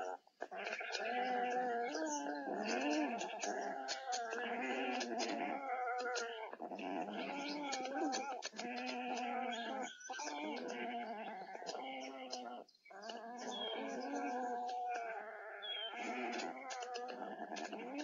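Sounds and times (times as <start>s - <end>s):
wavering animal cries: 0.0s - 18.0s
faint clicks: 16.0s - 17.8s.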